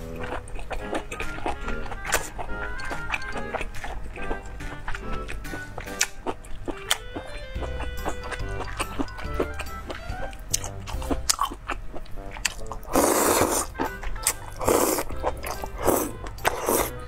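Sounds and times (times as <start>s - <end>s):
background music: 0.0s - 17.0s
chewing: 0.0s - 17.0s
person slurping noodles: 12.5s - 13.8s, 14.5s - 17.0s.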